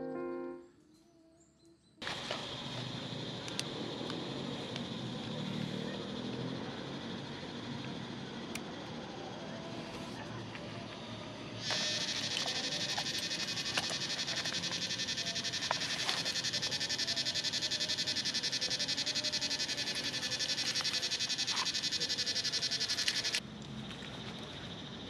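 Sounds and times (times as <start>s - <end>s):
insect pulsing buzz: 11.6s - 23.4s.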